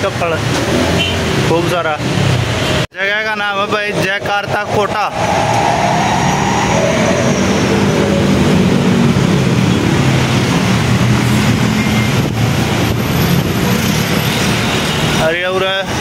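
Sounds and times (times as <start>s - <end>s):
road traffic rushing: 0.0s - 16.0s
low hum of engines: 3.7s - 14.8s.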